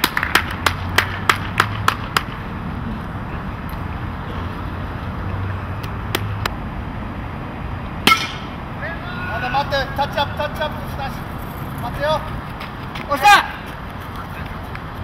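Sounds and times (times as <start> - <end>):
hand claps: 0.0 - 2.4.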